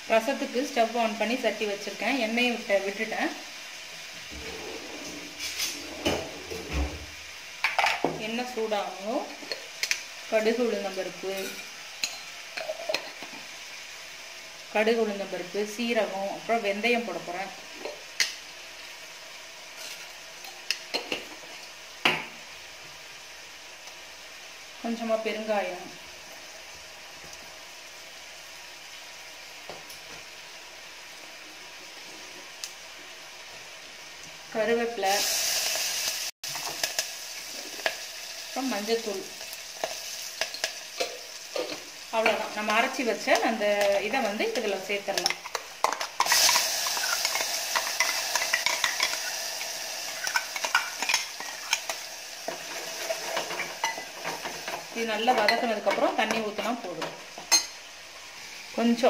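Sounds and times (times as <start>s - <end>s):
seeds sizzling in hot oil: 0.0s - 5.8s, 6.5s - 59.0s
spoon clicking and scraping: 45.2s - 49.3s, 50.2s - 52.0s.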